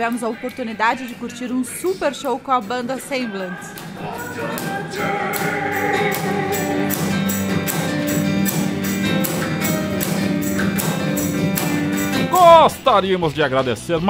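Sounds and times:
person singing: 2.7 - 7.7
cajon beat: 3.7 - 12.8
strummed acoustic guitars: 3.8 - 12.7.

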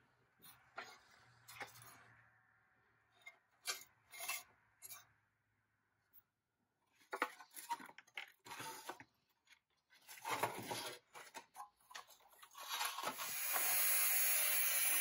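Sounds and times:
angle grinder grinding steel: 13.2 - 15.0.

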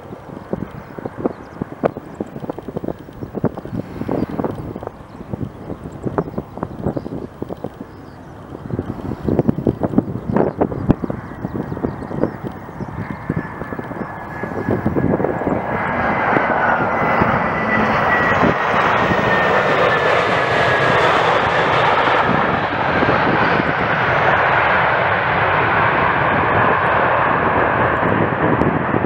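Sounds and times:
faint whine: 0.0 - 21.1
aircraft engine rushing: 0.0 - 29.0.

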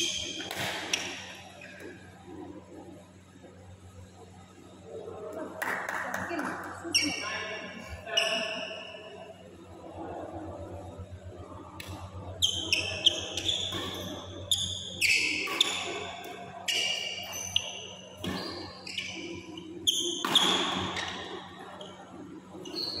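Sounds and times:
shoes squeaking on court: 0.0 - 2.6, 6.9 - 9.1, 11.8 - 23.0
racket hitting shuttlecock: 0.2 - 1.2, 20.2 - 21.2.

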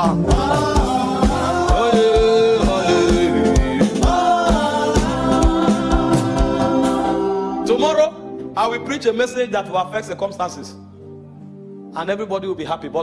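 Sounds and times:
band with steady drumbeat: 0.0 - 6.9
people singing: 0.0 - 7.6.

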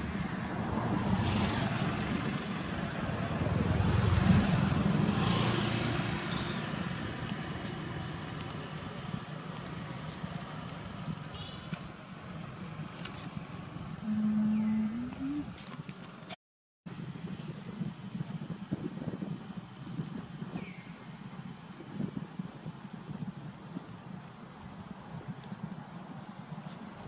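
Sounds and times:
motor vehicle passing: 0.0 - 11.1.

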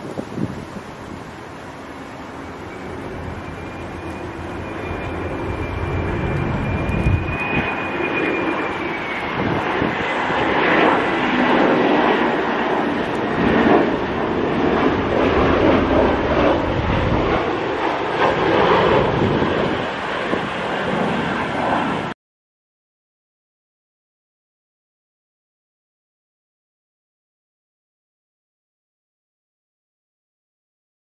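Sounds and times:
airliner jet engines roaring: 0.0 - 22.2
high engine whine: 0.1 - 22.1.

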